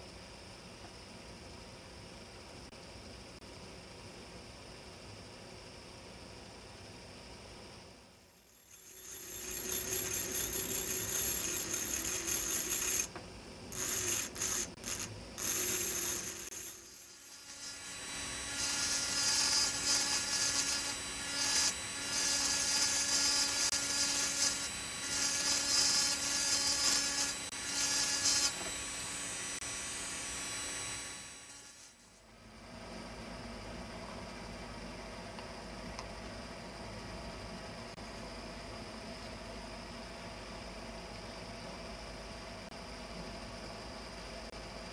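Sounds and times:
engraving drill grinding glass: 8.5 - 32.2.

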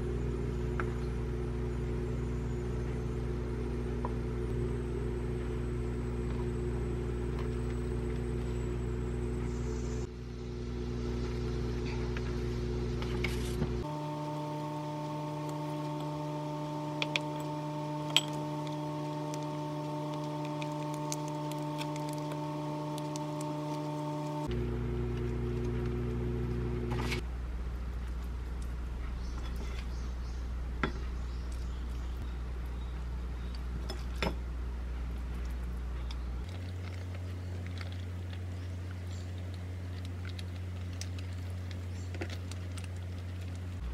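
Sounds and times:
appliance humming: 0.0 - 43.9
plastic wrap crinkling: 36.4 - 43.8.

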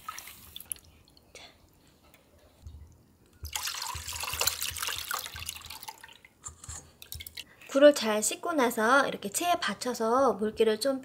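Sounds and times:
water splashing into sieve: 0.0 - 0.9, 3.5 - 6.3.

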